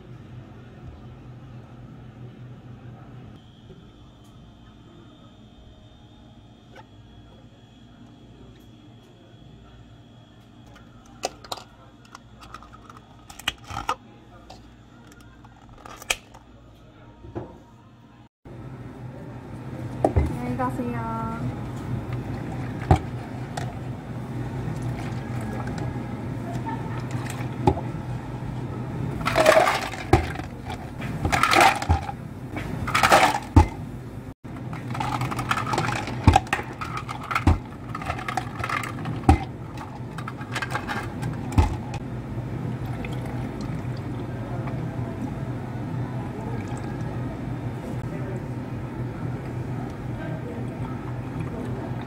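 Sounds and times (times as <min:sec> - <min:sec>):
steady low hum: 0:00.0 - 0:52.0
milk pouring into cups: 0:21.6 - 0:28.2, 0:34.5 - 0:42.0, 0:42.7 - 0:47.4
ice and cups clicking: 0:29.2 - 0:32.2, 0:32.8 - 0:33.6, 0:34.7 - 0:42.0
ice tipped into plastic cups: 0:29.2 - 0:33.8, 0:34.6 - 0:42.0.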